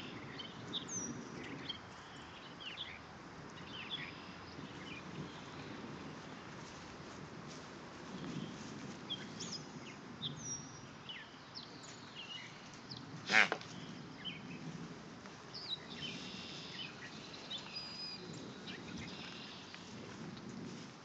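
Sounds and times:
loud animal call: 13.2s - 13.7s
birds chirping and singing: 15.5s - 19.8s.

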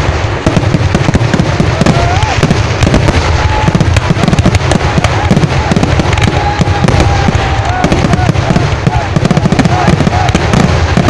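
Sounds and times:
fireworks bangs and crackles: 0.0s - 11.0s.

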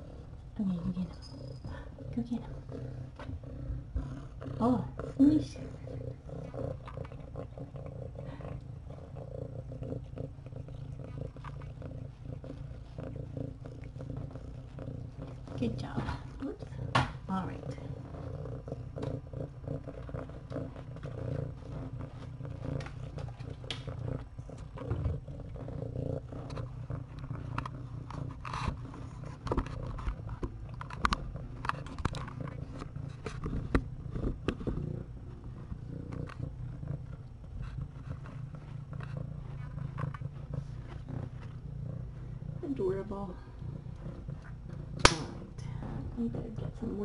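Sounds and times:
cat purring: 0.0s - 47.0s
soft clicks and rustles: 19.8s - 25.3s, 26.4s - 42.4s.

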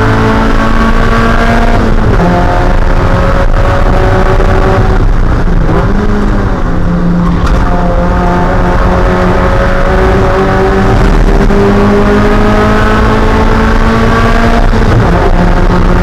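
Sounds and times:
race car engine running hard: 0.0s - 16.0s.

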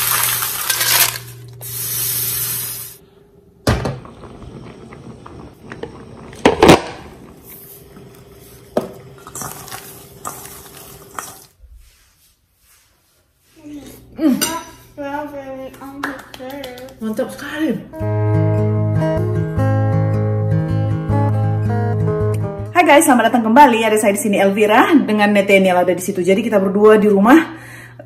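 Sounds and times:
loud hiss: 1.6s - 3.0s.

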